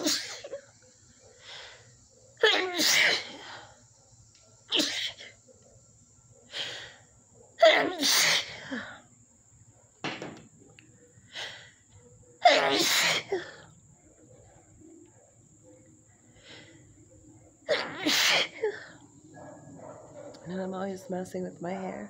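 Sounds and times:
woman sneezing: 0:00.0 - 0:00.6, 0:02.4 - 0:03.4, 0:07.6 - 0:08.8, 0:12.4 - 0:13.6, 0:17.7 - 0:18.8
breaths: 0:11.2 - 0:12.0, 0:16.3 - 0:17.0.

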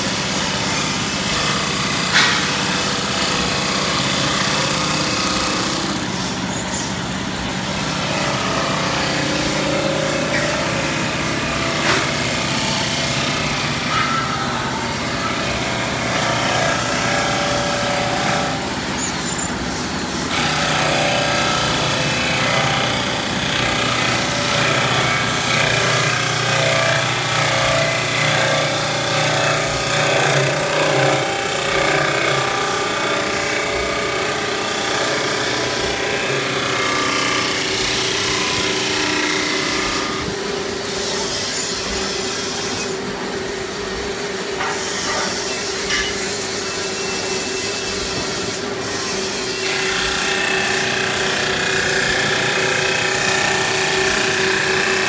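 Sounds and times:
wood cutting noise: 0:00.0 - 0:55.0
wood lathe hum: 0:07.5 - 0:40.6, 0:48.1 - 0:55.0.

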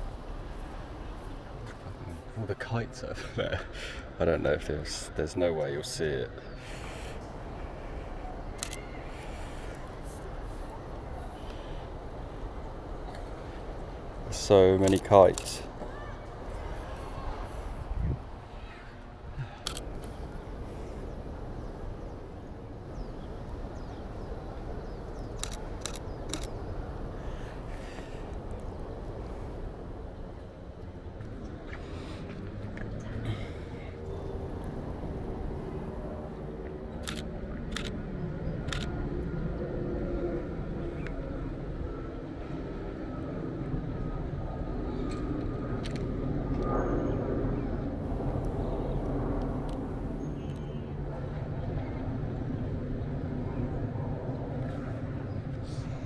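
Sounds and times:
low city rumble: 0:00.0 - 0:56.0
steady low rumble: 0:33.0 - 0:56.0.

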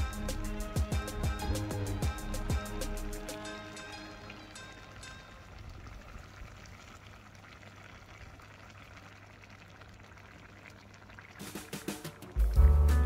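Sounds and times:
liquid pouring and splashing: 0:04.6 - 0:12.5.

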